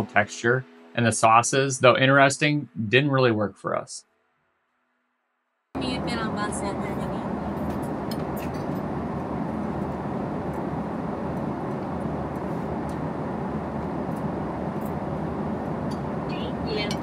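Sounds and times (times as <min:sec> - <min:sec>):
airliner cabin engine rush: 0:05.8 - 0:17.0.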